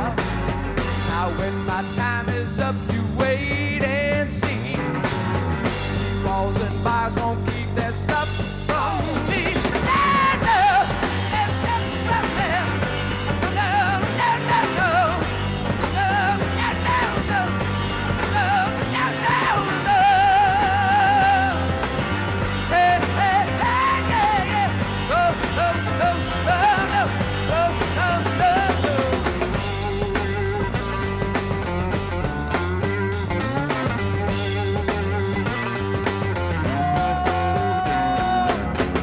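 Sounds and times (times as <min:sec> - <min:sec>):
hard rock band playing: 0:00.0 - 0:39.0
man singing and yelling: 0:01.0 - 0:05.0, 0:06.0 - 0:30.7, 0:36.3 - 0:39.0.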